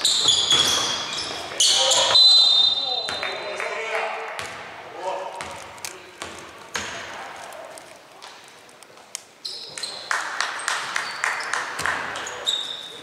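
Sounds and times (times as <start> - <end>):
sneakers squeaking on floor: 0.0 - 3.6, 9.4 - 13.0
basketball bouncing: 4.4 - 4.7, 5.4 - 7.2.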